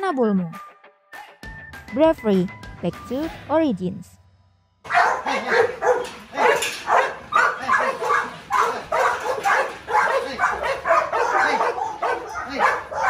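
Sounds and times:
dogs barking rapidly: 0:04.9 - 0:13.0.

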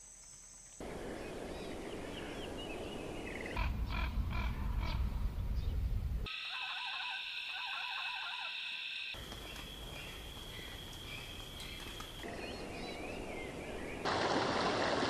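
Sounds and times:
bird chirps: 0:01.2 - 0:14.1
wavering animal calls: 0:06.3 - 0:09.2
running water rushing: 0:14.0 - 0:15.0.

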